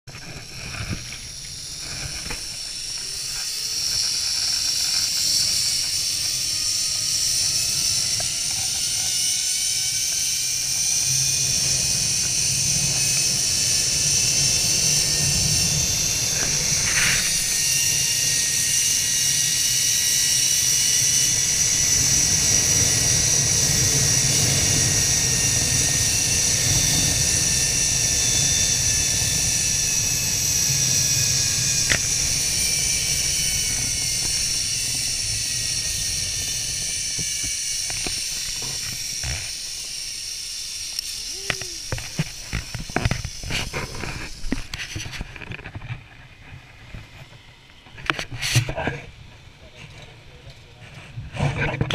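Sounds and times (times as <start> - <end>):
wind rumbling on microphone: 0.1 - 40.1
zip-line pulleys whirring on cable: 0.1 - 51.9.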